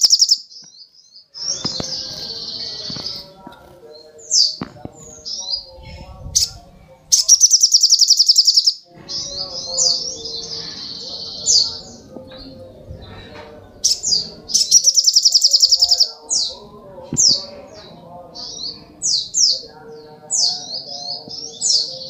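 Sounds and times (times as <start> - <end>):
sunbird singing trills: 0.0 - 3.3, 3.9 - 12.5, 13.2 - 16.6.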